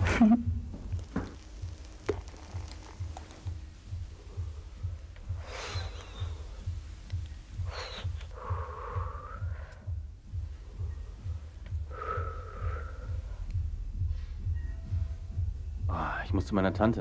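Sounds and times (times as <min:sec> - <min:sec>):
low throbbing pulse: 0:00.0 - 0:17.0
person inhaling and exhaling smoke: 0:00.8 - 0:09.9, 0:11.8 - 0:14.4.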